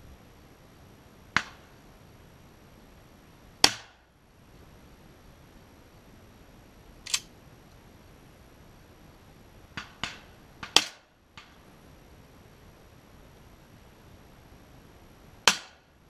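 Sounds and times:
quiet sharp cracks: 1.4 - 1.7, 7.0 - 7.3, 9.8 - 11.6.

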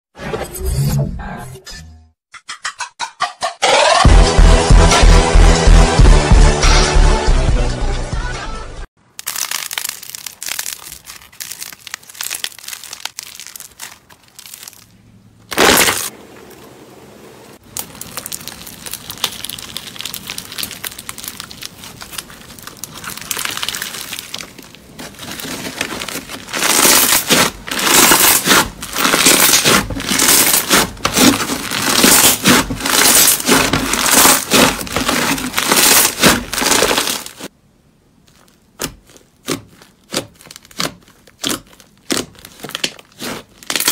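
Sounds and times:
slime crackling and popping: 9.1 - 16.1, 17.6 - 37.5, 38.2 - 43.9.

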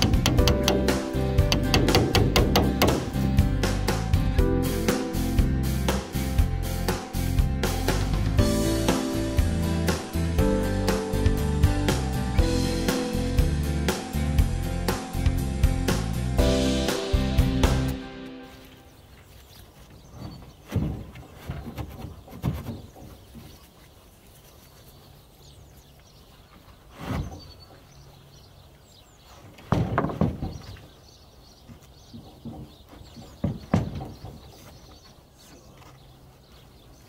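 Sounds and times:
floor boards knocking: 0.0 - 3.3, 29.6 - 30.8, 32.1 - 34.5.

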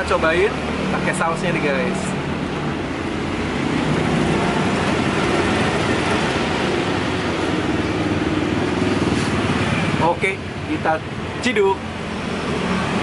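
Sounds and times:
road noise: 0.0 - 13.0
vehicle engine rumble: 0.0 - 13.0.

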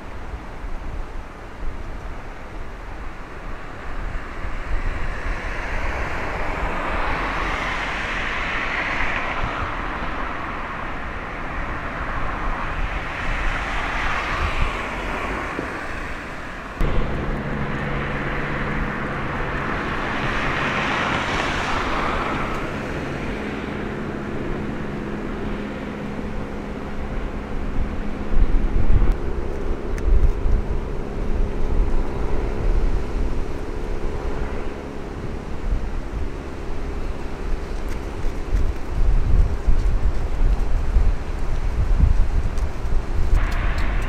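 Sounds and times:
low engine hum: 0.0 - 44.0
vehicles passing by: 0.0 - 44.0.

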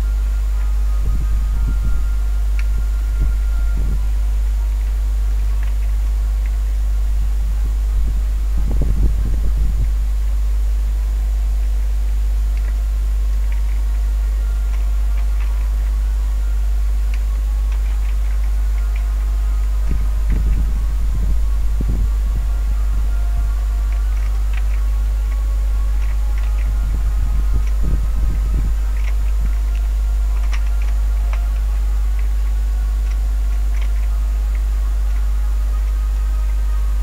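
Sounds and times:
low electrical hum with hiss: 0.0 - 37.0
low rumbling: 0.0 - 37.0
faint ticks: 12.2 - 20.8, 21.8 - 37.0.

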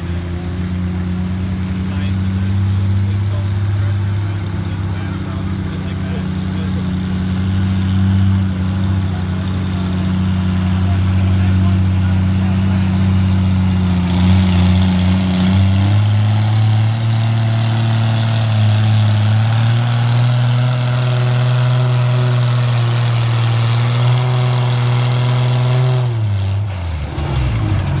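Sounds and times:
tractor engine under load: 0.0 - 28.0.

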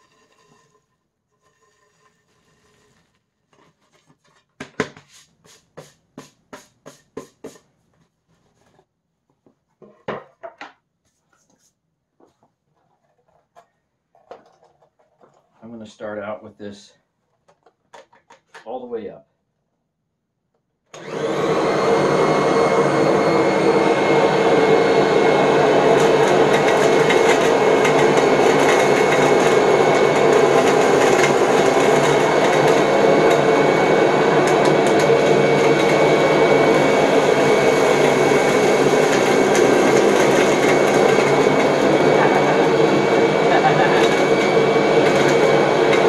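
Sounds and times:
vacuum cleaner motor whine: 20.9 - 46.0.

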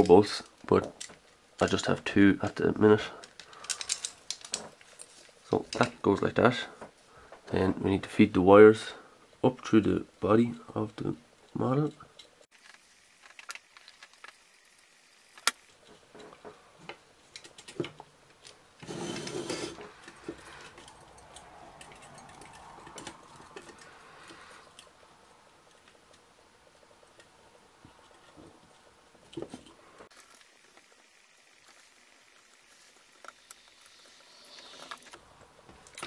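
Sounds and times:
wires rustling through plastic: 0.0 - 7.6, 12.5 - 36.0
plastic parts clicking: 3.2 - 6.0
scraping rustle: 18.8 - 24.9.

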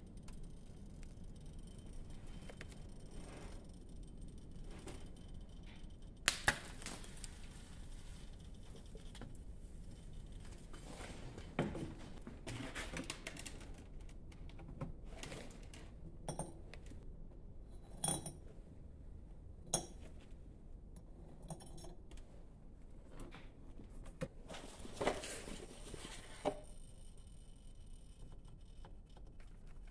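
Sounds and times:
metallic clinks and knocks: 17.9 - 18.4.

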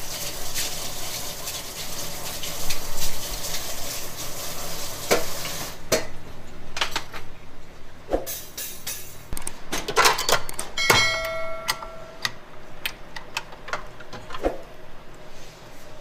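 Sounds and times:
bowl ringing: 10.8 - 12.3.

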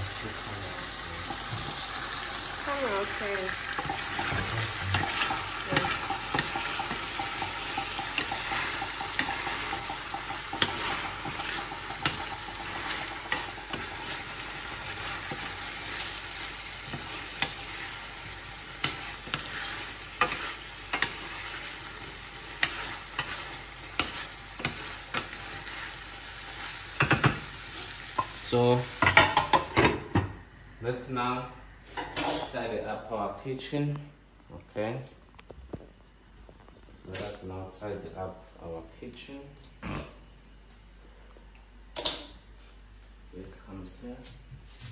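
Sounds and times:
food sizzling in pan: 0.0 - 30.2.

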